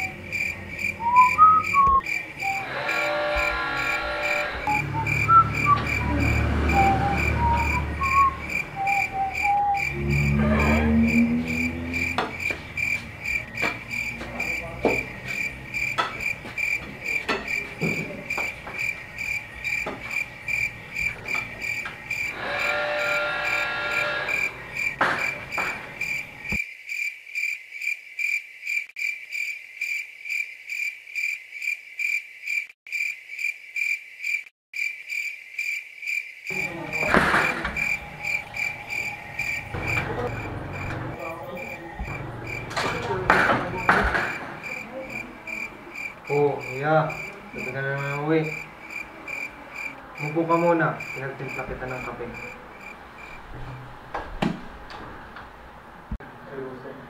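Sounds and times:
crickets chirping: 0.0 - 54.1
loud bump: 36.5 - 44.9.

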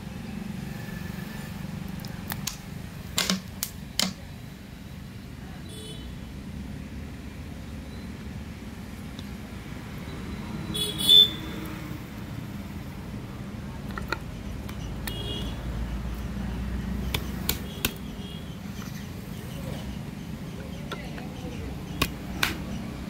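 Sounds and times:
plastic caps clicking: 13.8 - 15.2.

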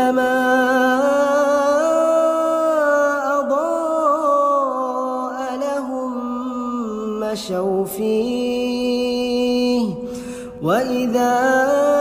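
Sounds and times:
person reciting melodically: 0.0 - 12.0.

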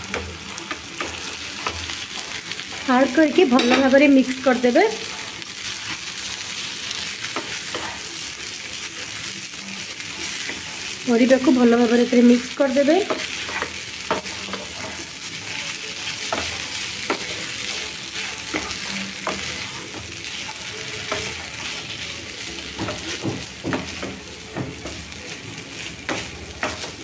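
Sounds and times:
spatula scraping and tapping pan: 0.0 - 4.1, 7.2 - 8.2, 10.1 - 15.2, 15.9 - 22.0, 22.6 - 27.0
rice sizzling in a frying pan: 0.0 - 27.0.

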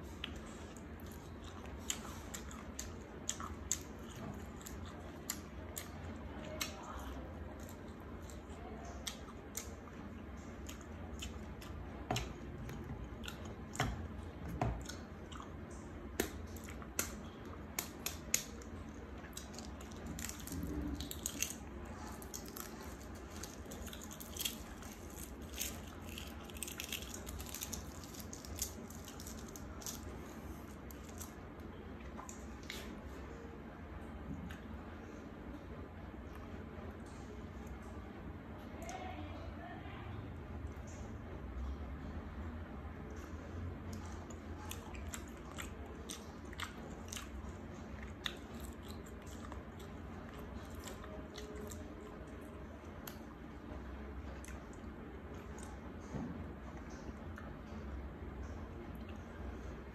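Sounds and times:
chewing with wet mouth noises: 0.0 - 33.1, 43.1 - 53.5, 54.1 - 56.0
eggshell peeling crackles: 16.1 - 33.0.

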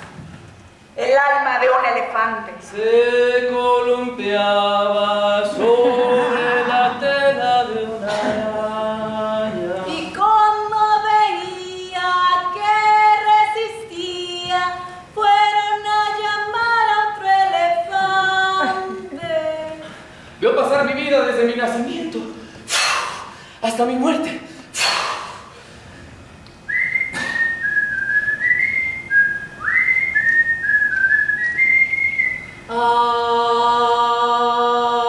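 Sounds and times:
voices singing unaccompanied: 2.6 - 19.8, 29.7 - 35.0.

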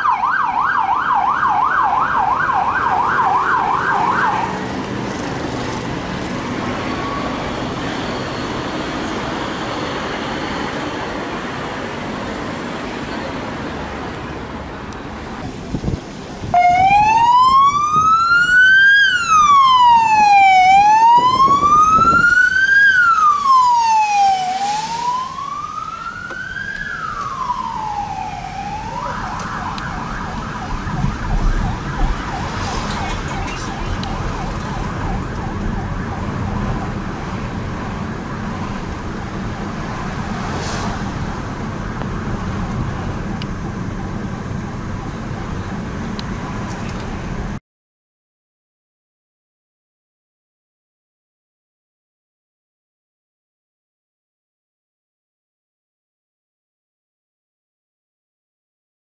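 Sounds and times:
fast warbling siren: 0.0 - 4.6, 16.6 - 37.2
siren wailing up and down: 0.0 - 4.7, 16.5 - 41.4
car engine and road noise: 0.0 - 47.6.

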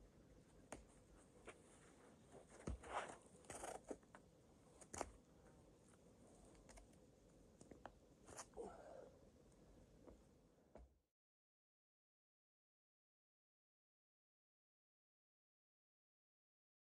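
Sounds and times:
climbing shoes scraping on rock: 2.4 - 3.9.

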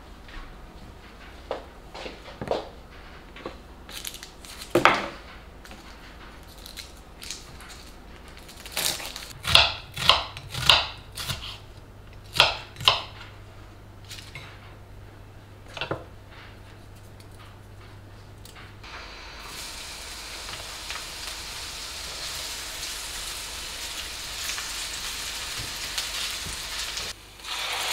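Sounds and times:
knife chopping on wooden board: 9.4 - 11.6, 12.3 - 13.1.

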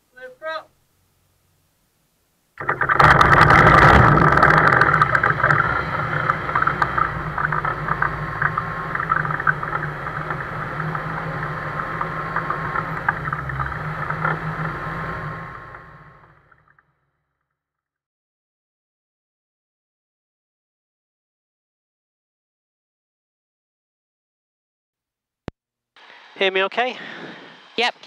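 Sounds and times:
aircraft engine starting and idling: 2.6 - 16.6, 26.0 - 28.0.

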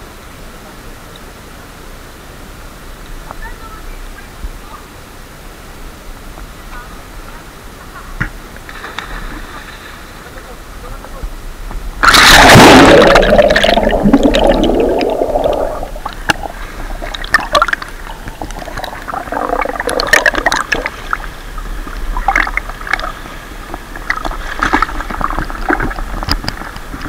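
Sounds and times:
water splashing and sloshing: 8.5 - 10.3, 12.0 - 27.0
muffled underwater bubbling rush: 11.9 - 27.0.

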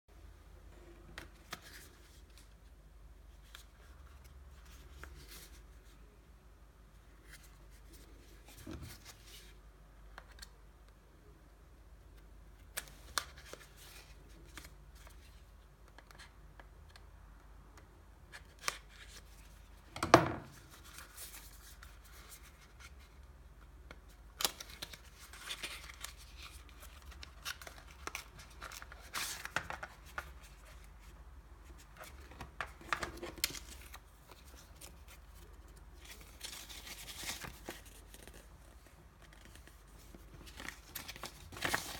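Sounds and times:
paper rustling and sliding: 32.0 - 41.9.

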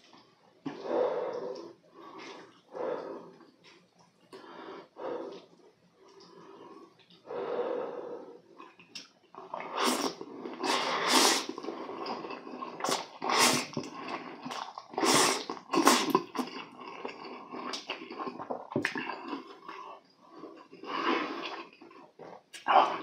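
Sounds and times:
person slurping noodles: 9.4 - 19.6, 20.7 - 23.0.

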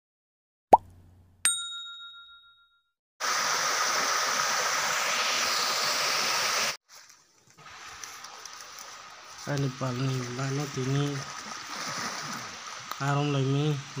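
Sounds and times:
bright bell ding: 1.5 - 2.9
steady hiss: 7.6 - 14.0.

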